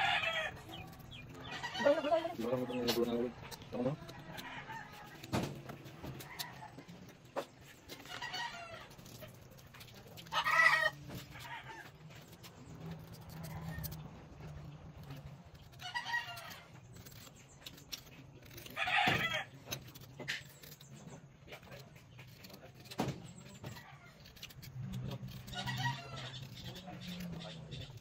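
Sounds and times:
chickens calling: 0.0s - 9.5s.

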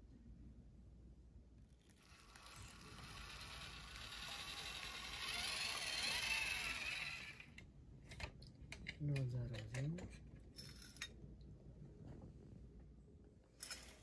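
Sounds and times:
toy tractor motor whirring: 1.8s - 7.6s.

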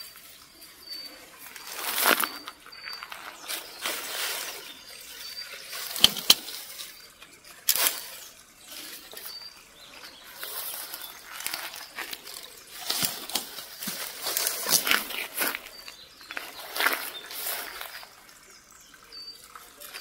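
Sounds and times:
grass and leaves rustling: 0.0s - 20.0s
twigs snapping: 5.9s - 6.7s.

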